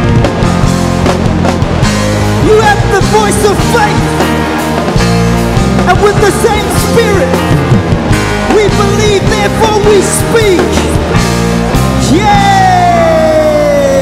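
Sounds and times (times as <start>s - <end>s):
rock band playing: 0.0s - 14.0s
man singing: 12.0s - 14.0s.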